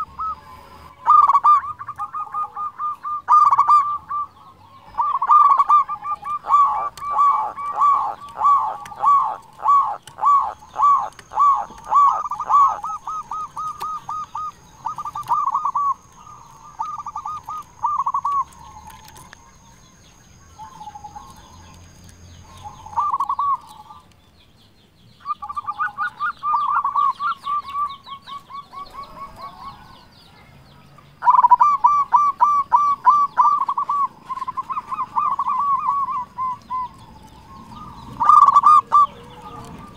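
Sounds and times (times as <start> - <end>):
dove cooing: 0.0 - 24.0, 25.2 - 30.1, 31.2 - 39.9.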